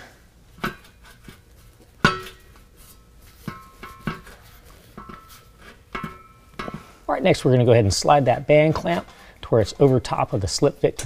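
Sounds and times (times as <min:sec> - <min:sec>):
metal clanks and clinks: 0:02.0 - 0:02.6, 0:03.4 - 0:06.8.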